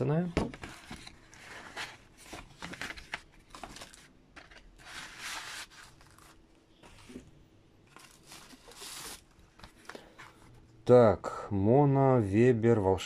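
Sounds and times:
packaging rustling and scraping: 0.5s - 7.2s, 7.9s - 10.4s.

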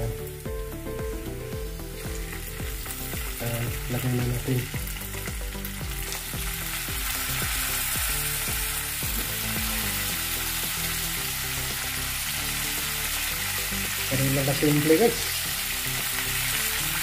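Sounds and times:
shrimp sizzling in a pan: 0.0s - 17.0s.

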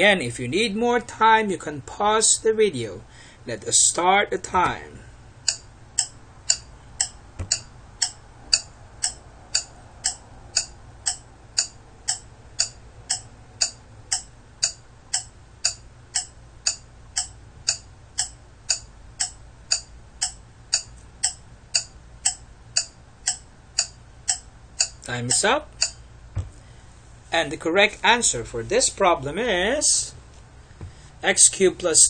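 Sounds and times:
clock ticking: 4.5s - 26.1s.

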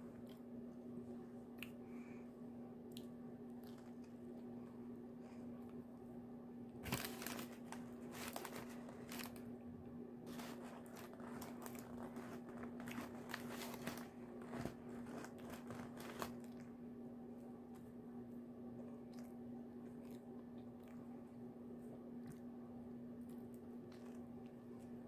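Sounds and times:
steady low hum: 0.0s - 25.0s
person chewing crunchy food: 10.3s - 16.7s, 18.9s - 22.6s, 23.2s - 25.0s.

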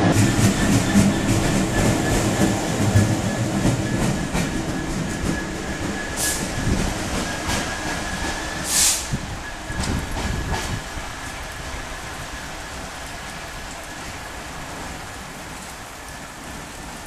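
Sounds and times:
diesel locomotive passing: 0.0s - 17.0s
short hisses: 8.7s - 9.2s.

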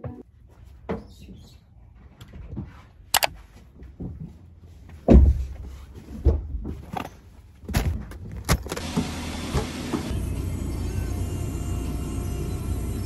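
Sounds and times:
sharp clicks: 3.2s - 3.4s.

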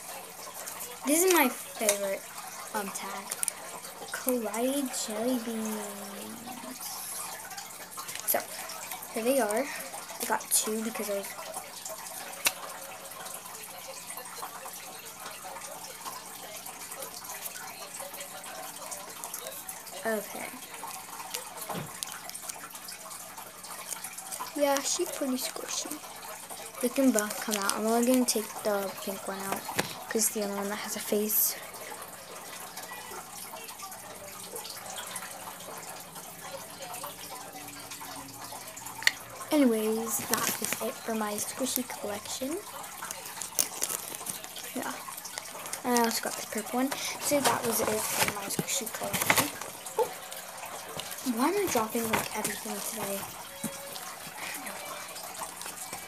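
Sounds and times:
faint trickle of running water: 0.0s - 56.0s
plastic packaging crinkling: 21.1s - 22.8s, 27.0s - 28.2s, 29.5s - 30.1s, 40.0s - 56.0s.

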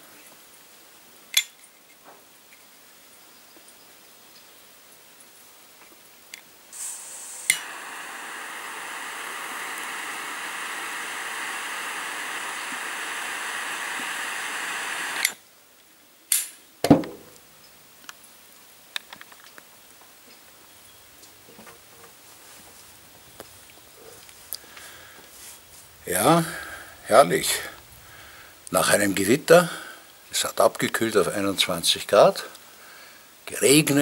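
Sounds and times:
jet lighter burning with hiss: 6.7s - 15.4s, 20.9s - 32.7s
lighter click: 7.3s - 15.4s.

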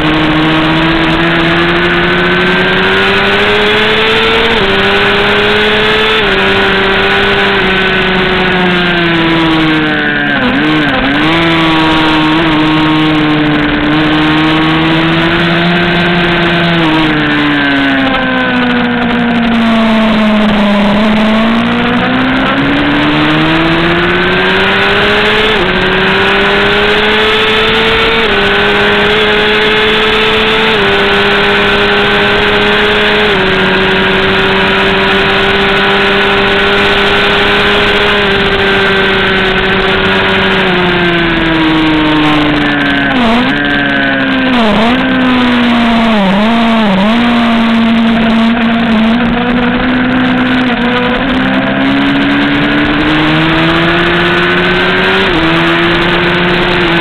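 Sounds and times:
motorcycle engine at high revs: 0.0s - 57.0s
wind rush over microphone: 0.0s - 57.0s.

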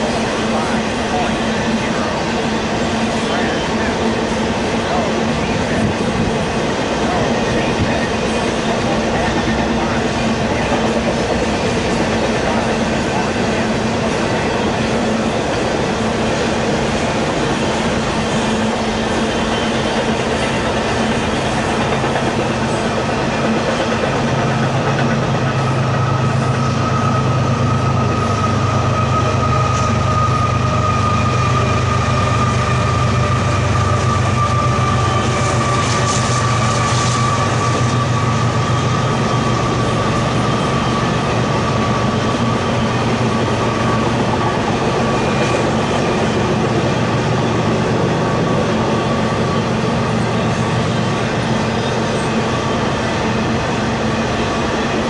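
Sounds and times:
train wheels rumbling on rail: 0.0s - 55.0s
high-pitched wheel squeal: 25.6s - 44.0s.

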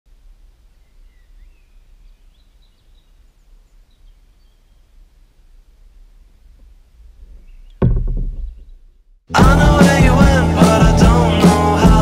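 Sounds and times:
birds chirping: 0.5s - 9.1s.

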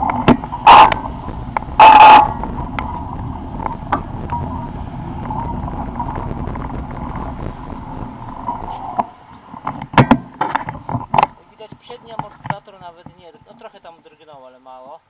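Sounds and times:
wind buffeting microphone: 0.0s - 11.3s
bicycle rolling over paving stones: 0.0s - 13.7s.

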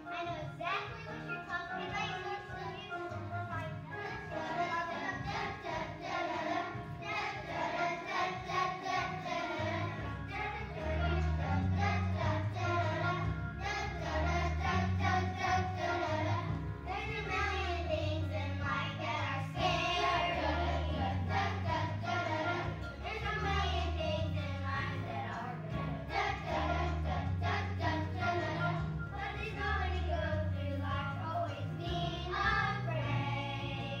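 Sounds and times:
musical accompaniment: 0.0s - 34.0s
children singing in unison: 3.9s - 24.1s, 25.8s - 30.4s.

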